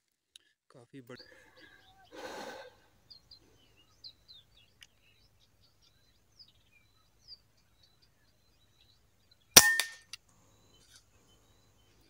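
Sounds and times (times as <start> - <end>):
air rifle shot: 9.6 - 10.0.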